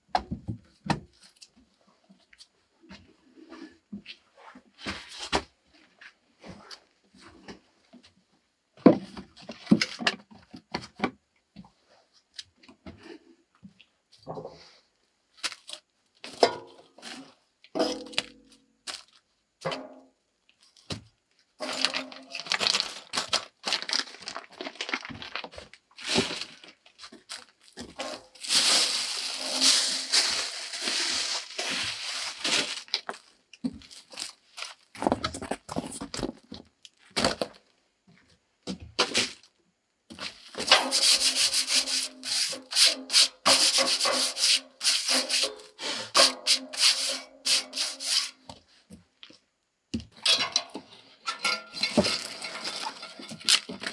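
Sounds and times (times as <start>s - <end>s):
plastic packaging crinkling and tearing: 21.6s - 35.0s, 52.0s - 53.9s
wood and tools clattering: 21.6s - 36.7s, 40.1s - 48.6s, 50.0s - 53.9s.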